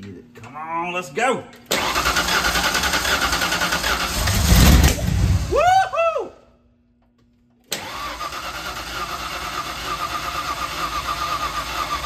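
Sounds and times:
starter motor cranking engine: 1.7s - 4.9s, 7.7s - 12.0s
short whine rising and falling: 4.0s - 6.1s.

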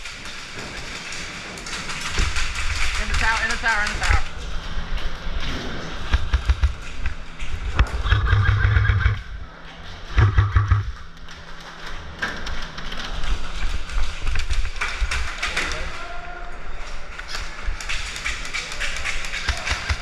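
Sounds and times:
taps and thuds: 6.0s - 9.2s, 10.1s - 11.0s
airsoft rifles firing bursts: 17.8s - 20.0s.

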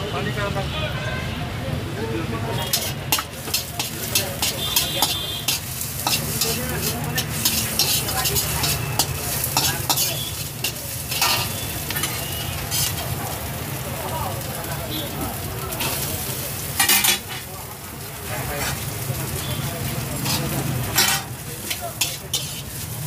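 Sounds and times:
onion and chicken sizzling in wok: 1.8s - 23.0s
metal turner scraping wok: 2.6s - 13.8s, 15.4s - 17.6s, 18.2s - 23.0s.

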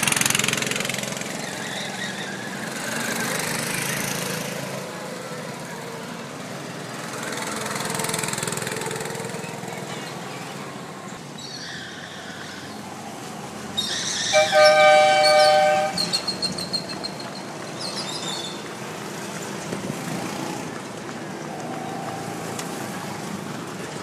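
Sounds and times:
small truck engines running: 0.0s - 24.0s
truck air horn: 14.2s - 16.3s.

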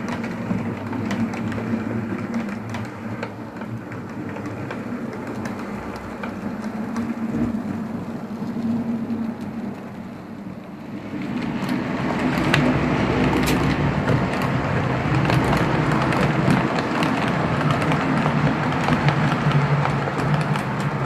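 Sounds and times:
wheels clicking on rails: 0.0s - 21.0s.

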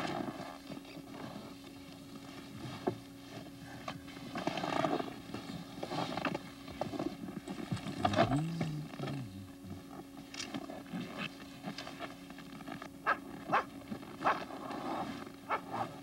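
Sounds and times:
steady low hum: 0.0s - 16.0s
low wavering tone: 6.7s - 12.2s.

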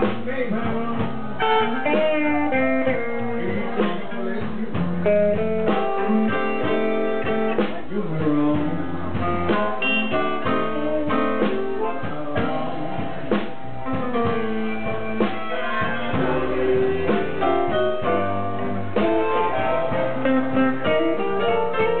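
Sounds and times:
blues guitar: 0.0s - 22.0s
drums: 0.0s - 22.0s
piano: 0.0s - 22.0s.

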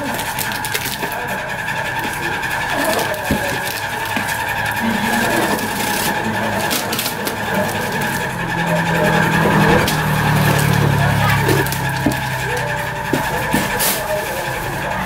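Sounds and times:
box cutter slitting cardboard: 2.0s - 8.2s, 13.0s - 14.0s.

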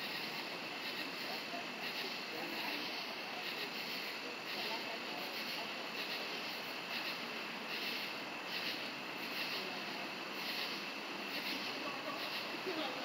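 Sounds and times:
insects pulsing calls: 0.0s - 13.0s
steady background hiss: 0.0s - 13.0s.

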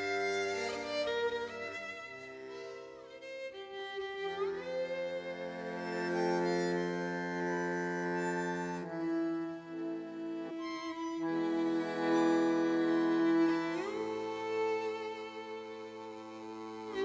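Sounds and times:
bandoneon: 0.0s - 17.0s
violin melody: 0.0s - 17.0s.

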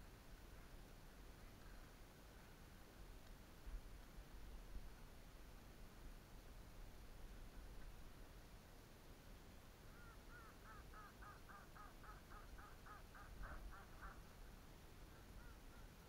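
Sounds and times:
faint bird call: 9.8s - 16.0s.

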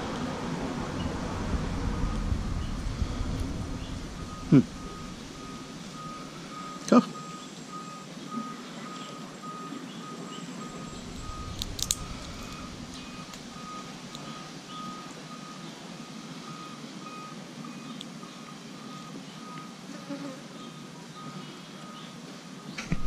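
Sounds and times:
high beep: 4.2s - 8.6s, 10.6s - 15.1s
sharp clicks: 11.4s - 14.3s.

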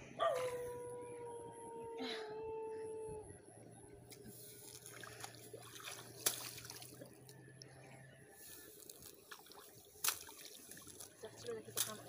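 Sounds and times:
muddy water splashing and trickling: 4.0s - 12.0s
sharp splashes: 4.6s - 7.3s, 8.8s - 12.0s.

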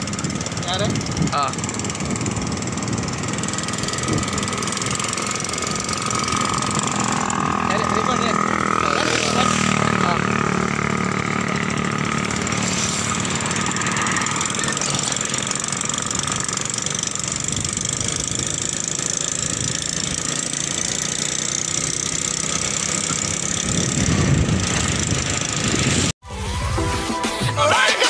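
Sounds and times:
motorcycle engine running: 0.0s - 26.2s.

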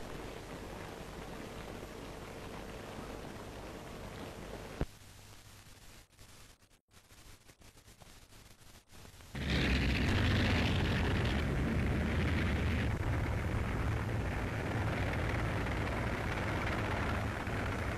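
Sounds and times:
film hiss: 0.0s - 17.9s
loud battle rumbling: 9.4s - 17.9s.

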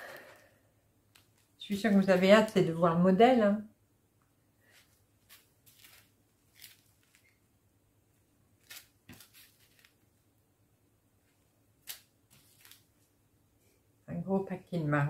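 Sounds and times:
plastic bags crinkling: 5.2s - 7.4s.

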